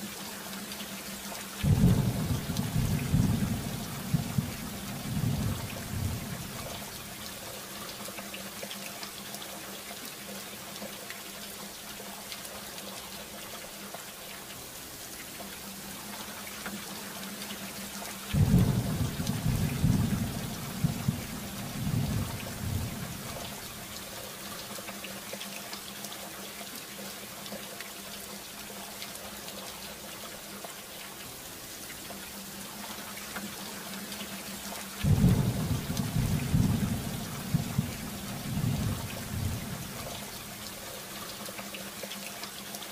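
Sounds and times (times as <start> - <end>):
steady rain: 0.0 - 42.9
thunder clap rumbling: 1.6 - 6.8, 18.4 - 23.4, 35.0 - 40.1.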